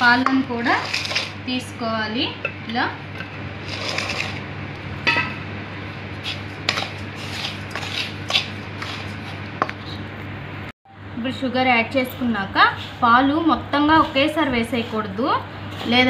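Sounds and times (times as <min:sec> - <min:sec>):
spatula scraping steel bowl: 0:00.0 - 0:01.4, 0:03.2 - 0:04.5, 0:06.2 - 0:10.0
steady low hum: 0:00.0 - 0:16.0.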